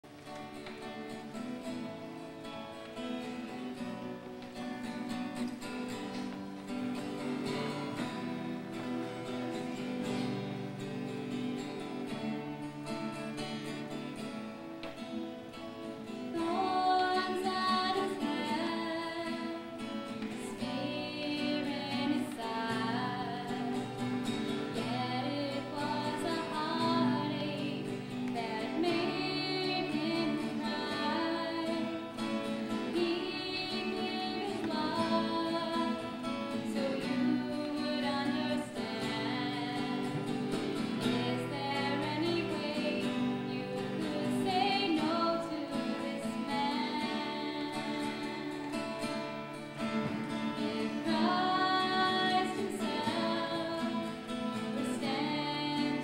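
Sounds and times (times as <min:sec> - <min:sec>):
acoustic guitar strumming: 0:00.0 - 0:56.0
young woman singing: 0:16.0 - 0:56.0.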